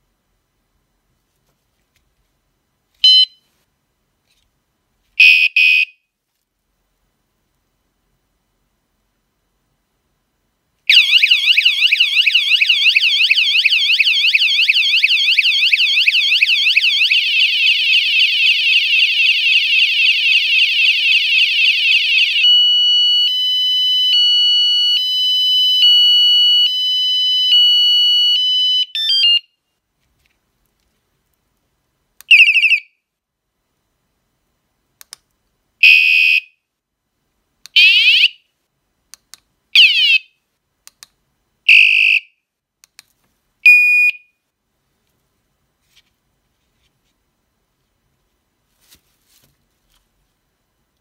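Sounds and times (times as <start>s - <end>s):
bicycle alarm siren warbling: 10.9s - 29.4s, 37.8s - 38.4s, 39.8s - 40.3s.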